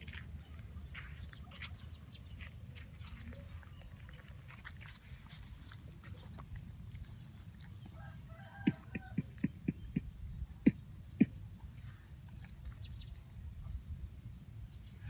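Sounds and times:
chicken clucking: 7.8s - 11.3s.

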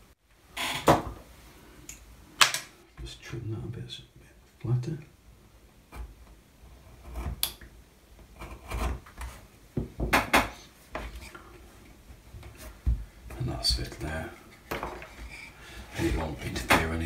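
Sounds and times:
wooden parts knocking and rubbing: 8.2s - 17.0s.

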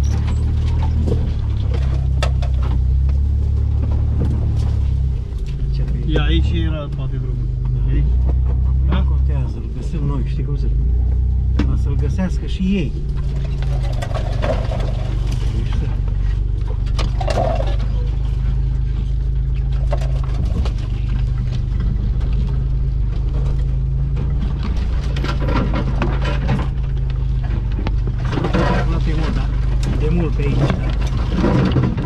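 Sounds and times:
branches scraping vehicle body: 0.0s - 5.8s, 13.0s - 32.0s
engine low drone: 0.0s - 32.0s
knocks and rattles over bumps: 0.0s - 32.0s.

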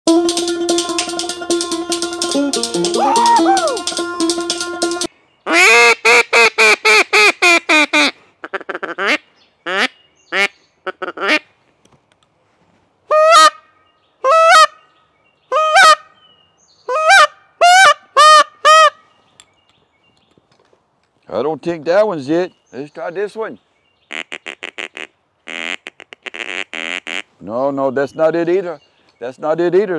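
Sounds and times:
music: 0.1s - 5.1s
goose honking: 24.1s - 27.3s.

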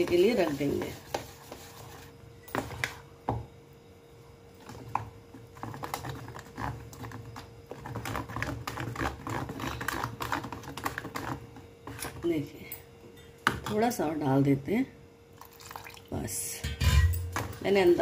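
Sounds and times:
spoon beating batter in steel bowl: 4.6s - 12.3s.

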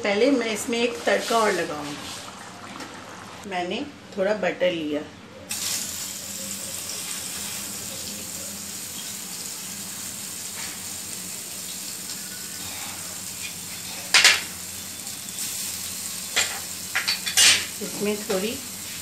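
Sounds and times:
butter sizzling in a ladle: 5.5s - 19.0s.

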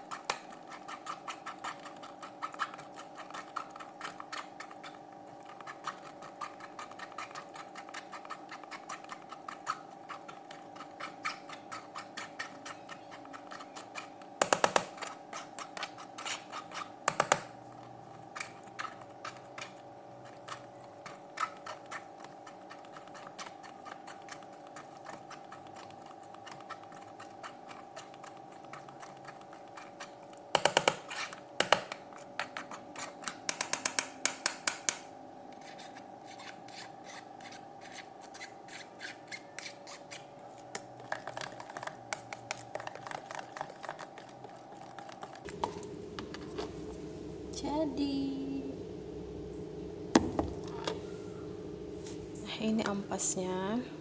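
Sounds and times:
scraping pulp through a sieve: 0.0s - 17.1s, 17.8s - 30.3s, 31.0s - 33.5s, 35.5s - 45.5s
steady hum: 0.0s - 54.0s.

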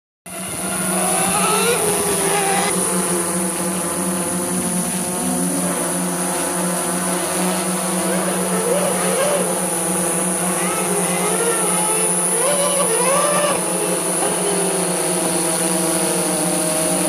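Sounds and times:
drone propellers humming: 0.3s - 17.0s.

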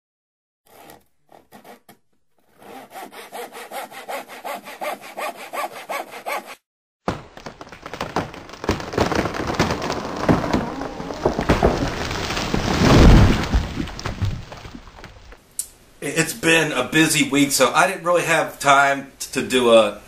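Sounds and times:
hand saw cutting wood: 0.7s - 6.7s
loud crackling noise: 7.1s - 15.4s.

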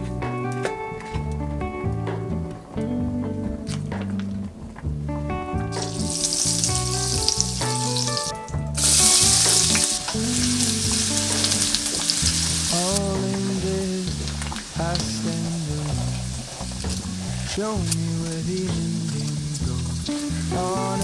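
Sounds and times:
oil sizzling in a frying pan: 5.7s - 13.3s, 14.0s - 17.5s.

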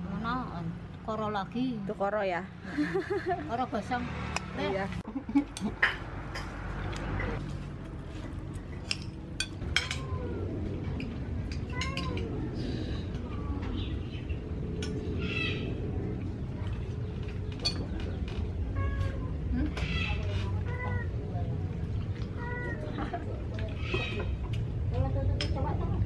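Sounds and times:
low background rumble: 6.8s - 26.0s.

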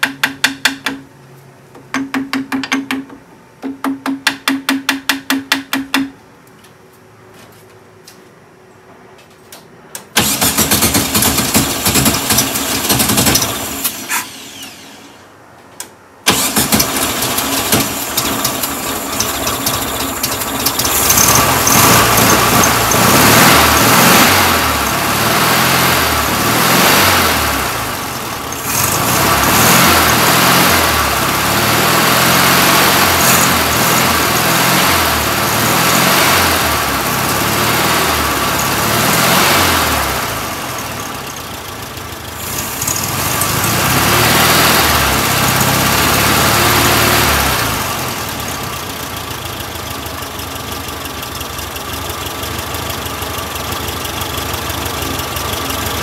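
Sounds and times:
car engine starting and running unevenly: 10.2s - 15.0s, 16.3s - 56.0s.

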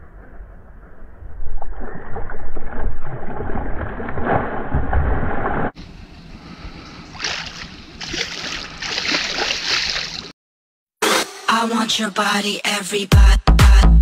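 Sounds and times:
quiet water sounds: 0.0s - 10.3s
fish splashing in water: 7.1s - 10.3s.

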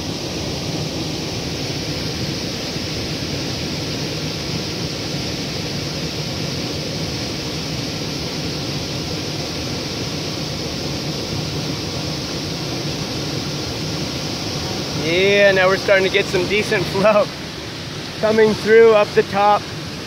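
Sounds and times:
flood water rushing over rocks: 0.0s - 20.0s.

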